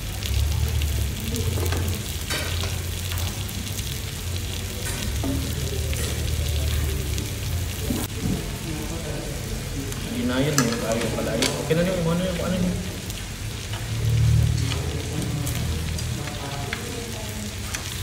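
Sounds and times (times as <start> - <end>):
meat sizzling on grill pan: 0.0 - 18.0
metal tongs clacking on pan: 1.6 - 3.2, 9.9 - 11.9, 17.6 - 18.0.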